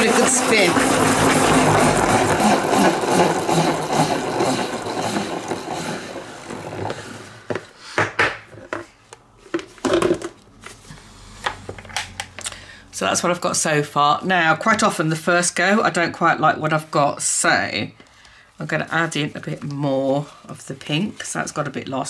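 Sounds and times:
salad spinner whirring and rattling: 0.0 - 7.5.

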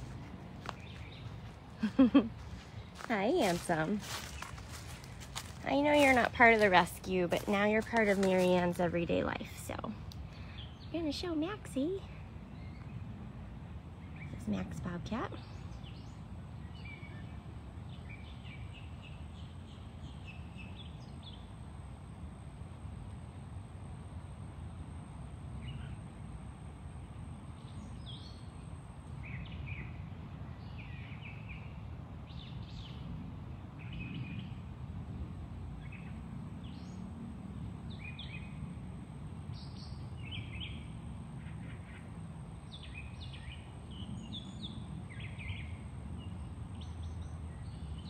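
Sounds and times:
small birds chirping: 0.0 - 13.1
low background rumble: 0.0 - 48.0.

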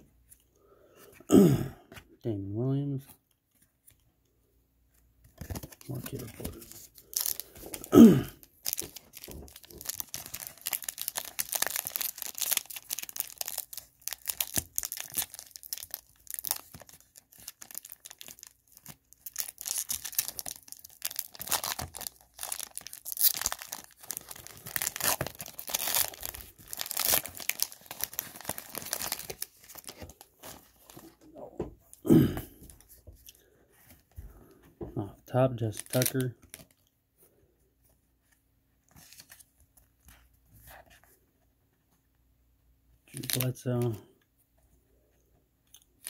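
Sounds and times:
foil wrapper tearing and crinkling: 8.6 - 31.0.

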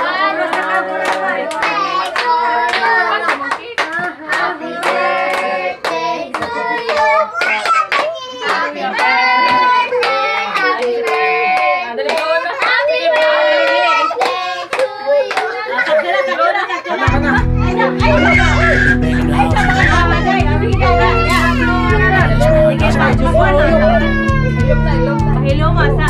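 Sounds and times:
people clapping: 0.0 - 16.4, 18.0 - 21.3
group singing birthday song: 0.0 - 26.0.

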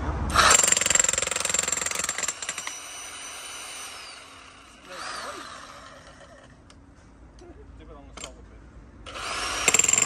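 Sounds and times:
jackhammer hammering: 0.3 - 6.5, 9.1 - 10.0.

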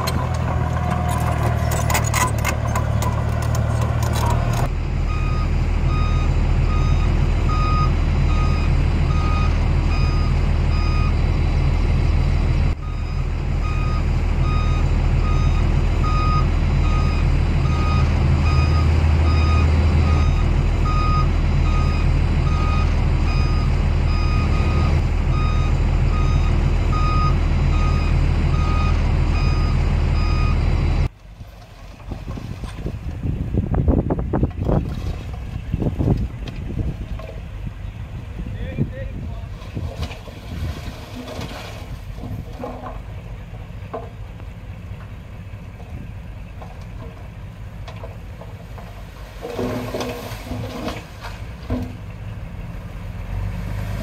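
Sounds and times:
diesel engine running: 0.0 - 54.0
reversing alarm beeping: 5.0 - 11.2, 12.8 - 30.6.

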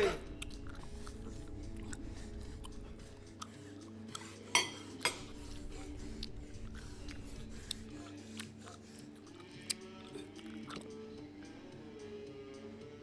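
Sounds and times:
low steady hum: 0.0 - 8.6
cutlery clinking on plate: 4.5 - 5.3.

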